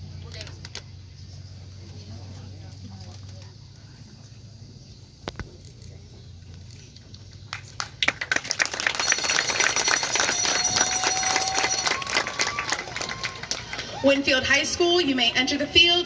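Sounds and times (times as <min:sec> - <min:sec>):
spectators applauding: 0:07.5 - 0:16.0
steady whistle: 0:09.0 - 0:14.1.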